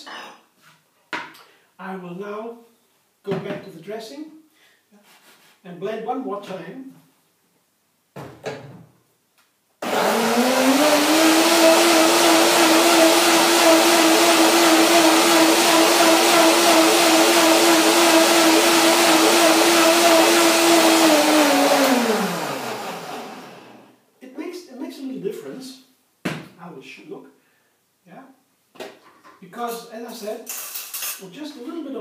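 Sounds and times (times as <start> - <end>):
blender motor running: 9.8 - 23.8.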